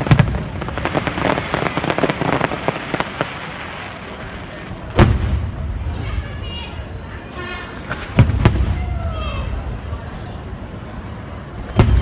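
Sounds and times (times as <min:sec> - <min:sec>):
crackle of small firework pops: 0:00.0 - 0:05.6.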